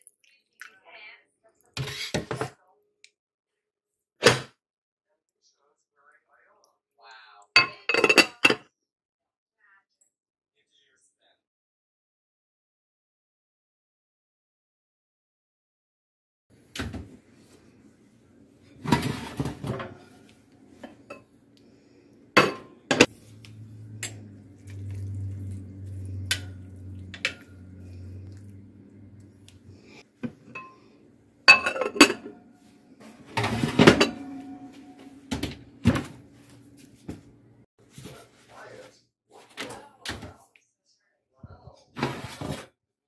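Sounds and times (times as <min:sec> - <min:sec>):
cookware clanks: 0:07.6 - 0:08.6, 0:20.8 - 0:21.3, 0:22.4 - 0:23.1, 0:26.2 - 0:27.8, 0:31.5 - 0:32.4, 0:33.2 - 0:36.1
metal spoon scraping ceramic dish: 0:22.4 - 0:28.5, 0:31.5 - 0:32.4.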